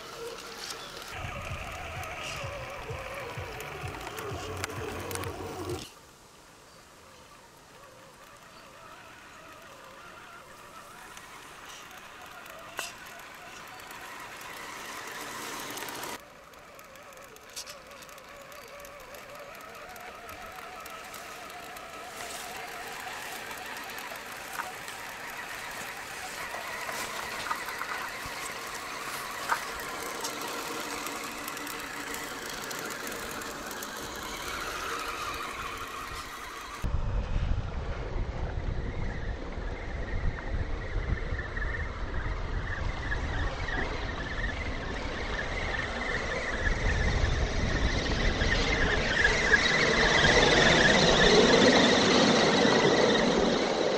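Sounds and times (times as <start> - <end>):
electric motor whining: 0.0 - 6.0, 7.1 - 36.9, 40.9 - 53.9
sharp clicks: 8.2 - 36.9.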